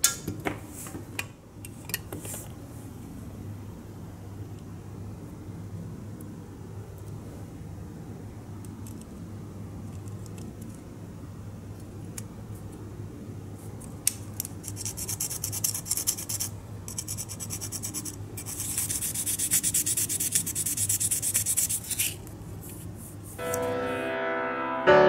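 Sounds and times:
sanding block rasping: 14.8s - 22.1s.

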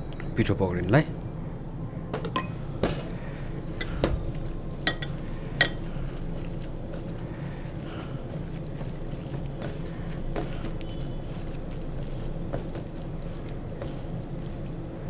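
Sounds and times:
steady low hum: 0.0s - 15.0s
glass bowl clinking: 2.3s - 2.6s, 4.8s - 5.8s.

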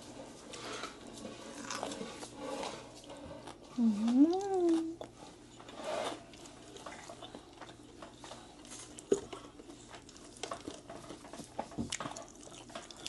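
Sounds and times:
person chewing: 1.5s - 2.1s, 6.3s - 11.2s, 11.9s - 13.0s.

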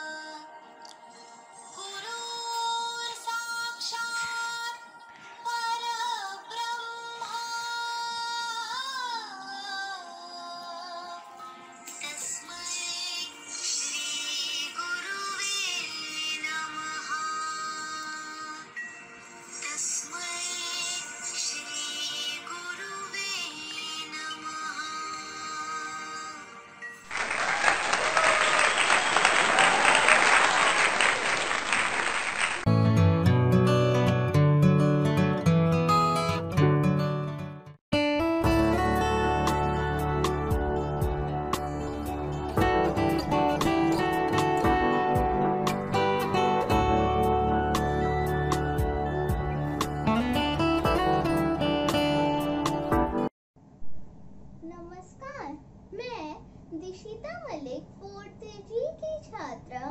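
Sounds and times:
woman singing long held notes: 1.7s - 18.8s, 19.5s - 26.6s
applause: 27.0s - 32.7s
backing music: 38.0s - 53.3s.

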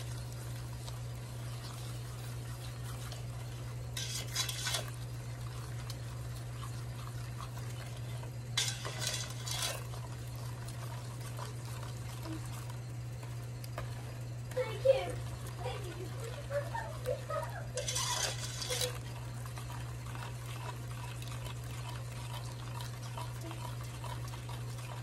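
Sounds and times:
steady low hum: 0.0s - 25.0s
spoon scraping a metal pot: 3.9s - 5.0s, 8.6s - 10.0s, 17.7s - 19.2s.

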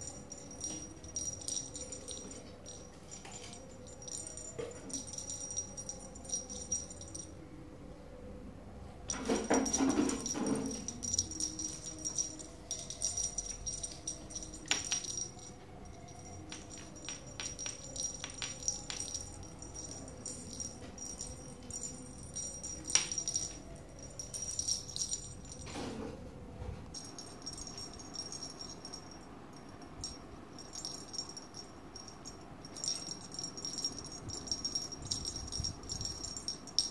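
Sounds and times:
small bell jingling: 0.0s - 7.4s, 9.1s - 25.8s, 26.9s - 36.9s
rattles and clicks: 9.1s - 15.3s.

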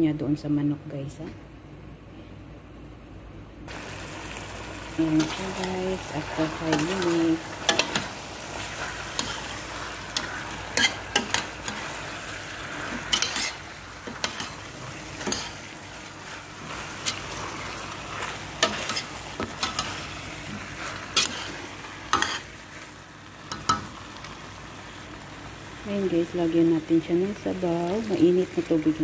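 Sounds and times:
food sizzling: 3.7s - 29.0s
metal spoon scraping a pot: 10.2s - 11.9s, 12.9s - 14.6s.

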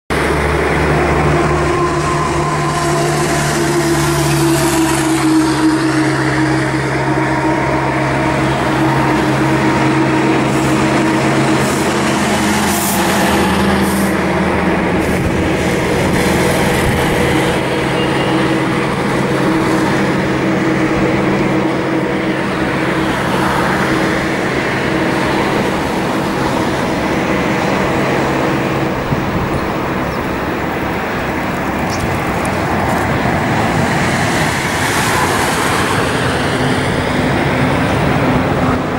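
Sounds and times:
road traffic noise: 0.1s - 38.9s.

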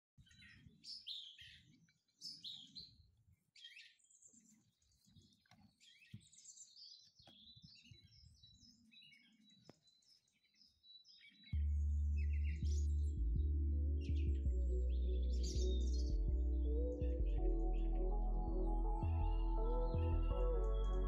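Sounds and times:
small birds chirping: 0.2s - 21.0s
soft low rumbles: 11.6s - 21.0s.

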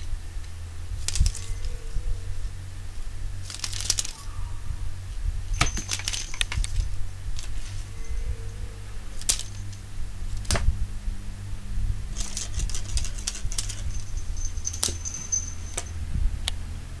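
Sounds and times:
low hum: 0.0s - 17.0s
collar tags jingling: 1.0s - 2.3s, 5.4s - 10.1s, 12.1s - 16.2s
short high ringing tone: 13.8s - 16.0s.

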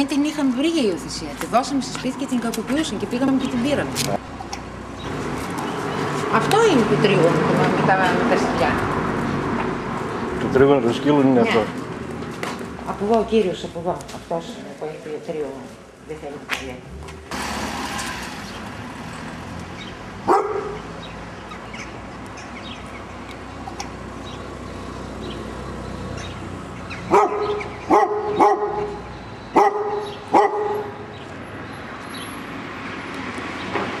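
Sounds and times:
dog barking: 20.2s - 20.8s, 27.1s - 31.0s.

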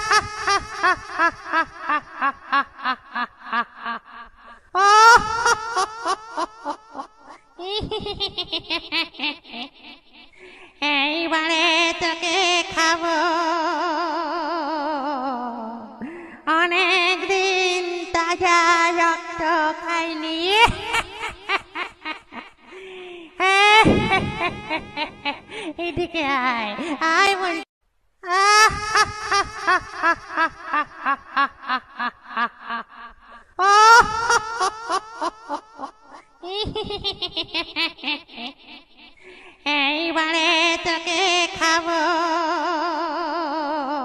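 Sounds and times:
high-pitched evil laugh: 0.0s - 10.0s, 20.5s - 27.6s, 28.3s - 38.8s.

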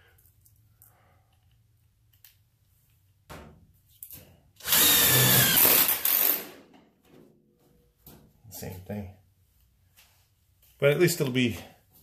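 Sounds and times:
power drill boring through steel: 4.6s - 6.4s.

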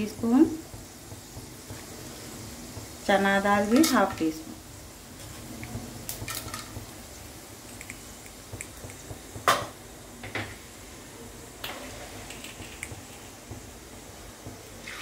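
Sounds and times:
seeds sizzling in hot oil: 0.0s - 15.0s.

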